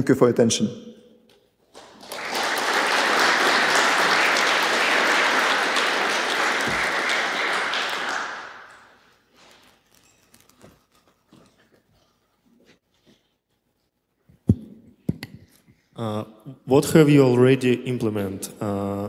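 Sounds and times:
audience applauding: 1.7 - 9.0.

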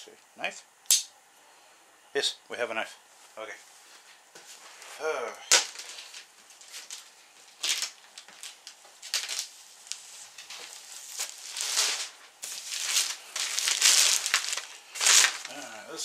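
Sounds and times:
plastic bag crinkling: 5.5 - 16.0.

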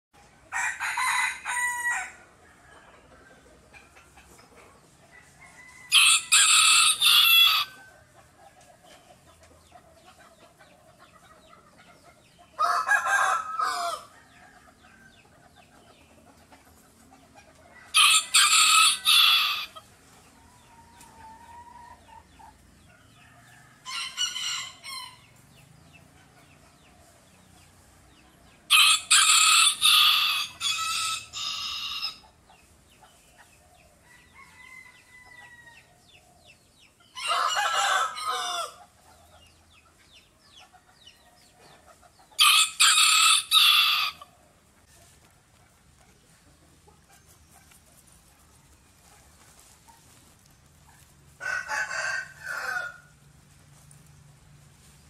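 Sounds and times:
rooster crowing: 0.5 - 2.8, 5.1 - 7.9, 12.6 - 14.8, 17.8 - 19.8, 28.7 - 32.2, 37.2 - 38.8, 42.4 - 44.3, 51.4 - 53.1.

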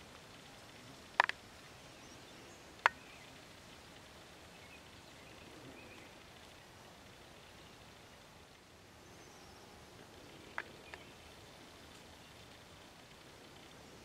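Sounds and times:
outdoor background noise: 0.0 - 14.0
sharp clicks: 1.2 - 1.4.

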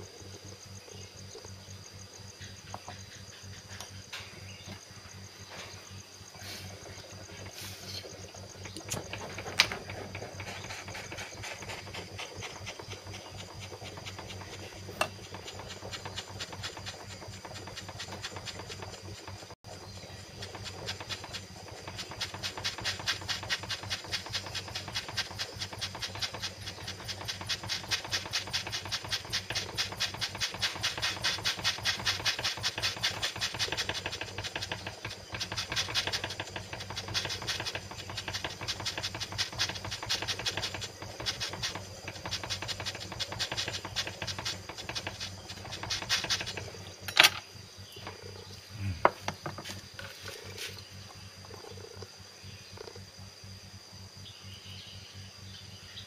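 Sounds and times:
torch flame hissing: 6.3 - 47.1.

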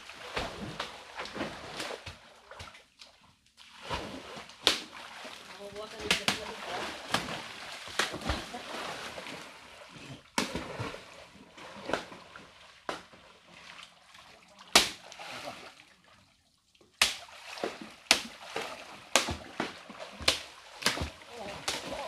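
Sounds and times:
sharp splashes: 0.0 - 2.8, 3.6 - 9.8, 10.4 - 16.3, 16.9 - 22.0
water sloshing: 0.0 - 22.0.

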